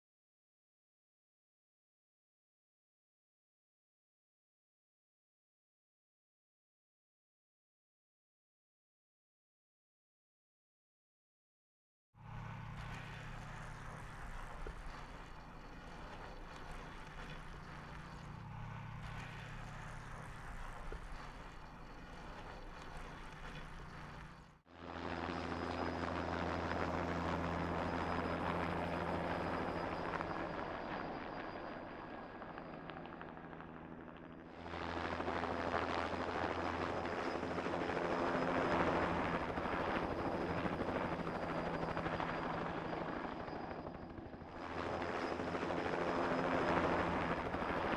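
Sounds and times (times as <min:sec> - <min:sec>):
low hum: 0:12.2 - 0:24.6
helicopter rotor and engine drone: 0:12.2 - 0:47.9.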